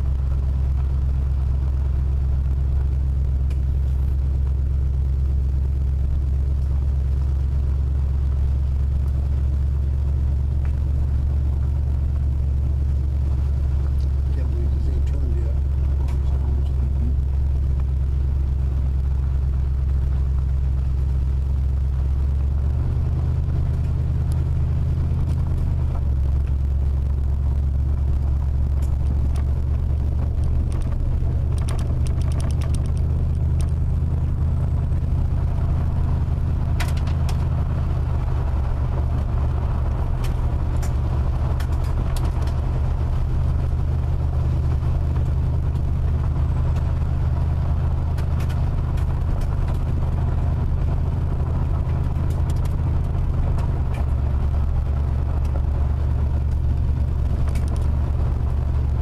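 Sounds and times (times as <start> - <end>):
car driving on gravel: 0.0 - 59.0
sharp ticks: 30.3 - 33.7.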